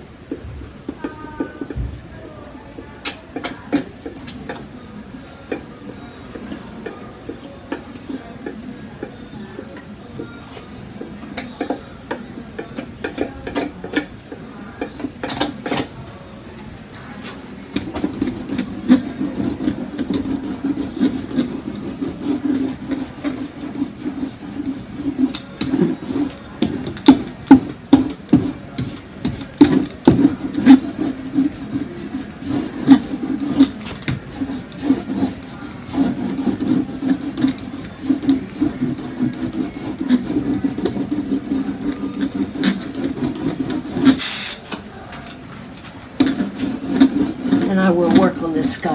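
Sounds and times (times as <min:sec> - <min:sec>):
palette knife scraping: 0:17.8 - 0:44.5, 0:46.2 - 0:48.9
tools rubbing over wax painting: 0:17.8 - 0:44.6, 0:46.2 - 0:48.9.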